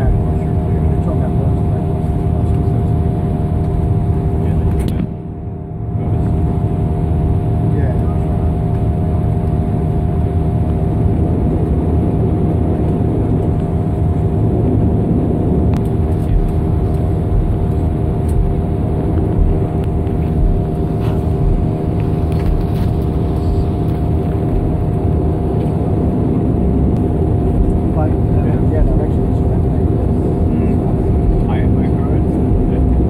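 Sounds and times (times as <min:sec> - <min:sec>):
turboprop engines droning: 0:00.0 - 0:33.0.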